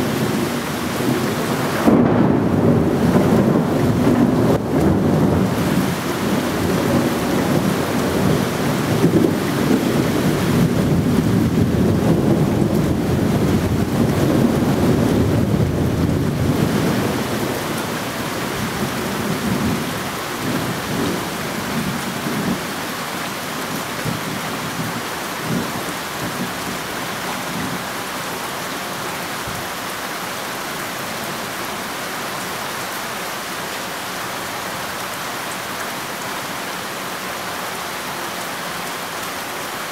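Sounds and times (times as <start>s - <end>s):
rolling thunder: 0.0s - 22.7s
steady rain: 0.0s - 39.9s.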